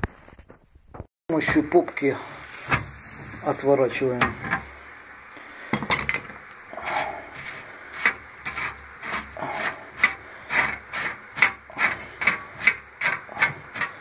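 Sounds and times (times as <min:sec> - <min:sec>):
metal scraping and rasping: 0:06.0 - 0:14.0.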